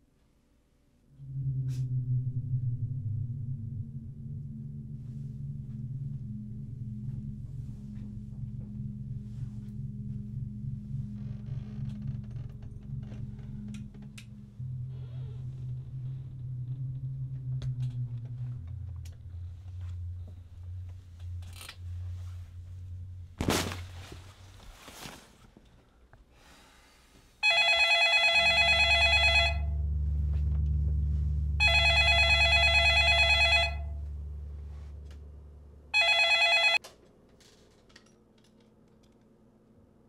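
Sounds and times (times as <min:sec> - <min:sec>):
low steady drone: 0:01.0 - 0:24.9, 0:28.4 - 0:36.6
telephone ringing electronic trill: 0:27.4 - 0:29.8, 0:31.6 - 0:34.0, 0:36.0 - 0:36.8.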